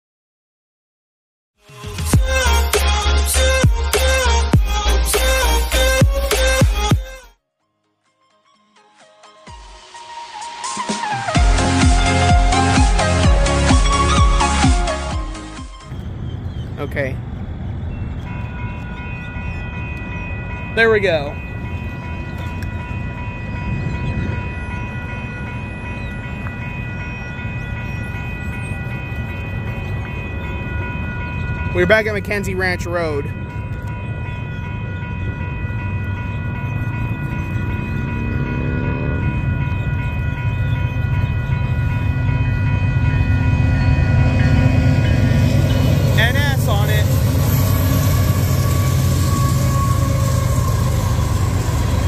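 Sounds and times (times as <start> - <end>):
railroad crossing bells ringing: 2.1 - 6.9, 7.7 - 52.0
freight train rumble: 11.0 - 52.0.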